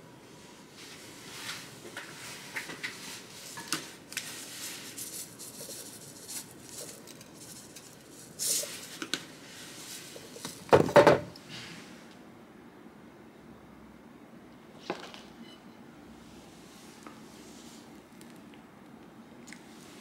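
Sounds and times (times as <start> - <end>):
seeds rattling in a plastic container: 4.3 - 9.1.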